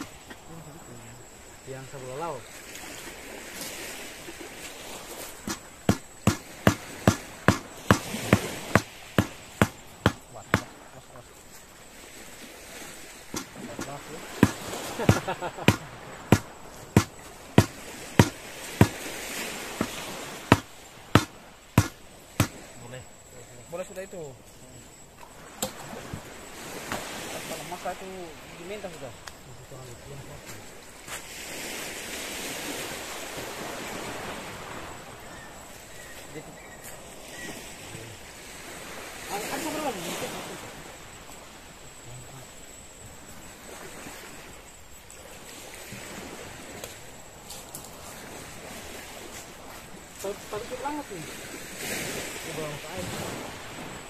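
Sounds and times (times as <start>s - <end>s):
sea surf: 0.0s - 24.7s, 25.4s - 29.2s, 29.8s - 54.0s
hand tool striking something solid: 5.4s - 10.7s, 13.3s - 19.1s, 19.8s - 22.6s.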